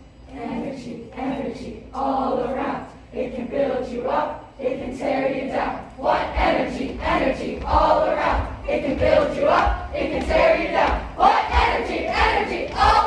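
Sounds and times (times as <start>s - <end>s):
young voices chanting and shouting: 0.3s - 13.0s
low thumps: 6.2s - 13.0s.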